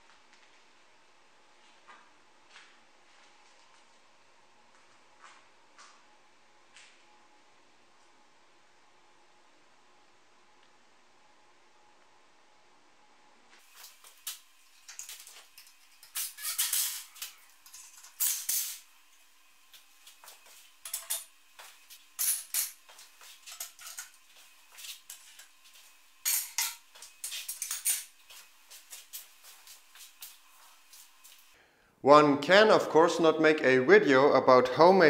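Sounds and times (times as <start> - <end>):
faint steady hum: 0.0 - 35.0
steel clamps clinking: 20.9 - 21.3, 26.3 - 28.1.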